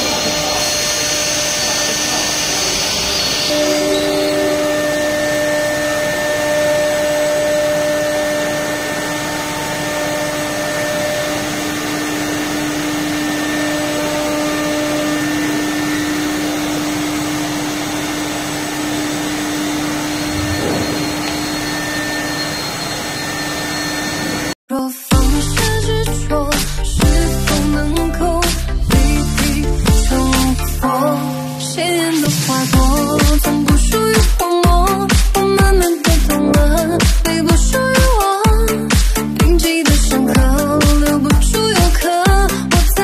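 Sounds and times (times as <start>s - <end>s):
milling machinery whirring: 0.0s - 24.6s.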